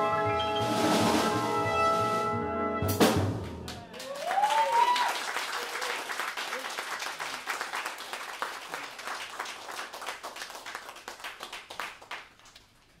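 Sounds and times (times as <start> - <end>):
audience applauding: 3.7 - 13.0.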